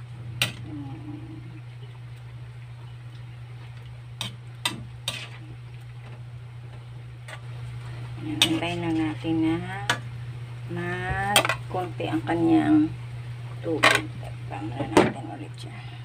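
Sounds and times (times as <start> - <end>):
steady low hum: 0.0 - 16.0
metal spatula scraping wok: 4.2 - 5.5, 8.4 - 9.1.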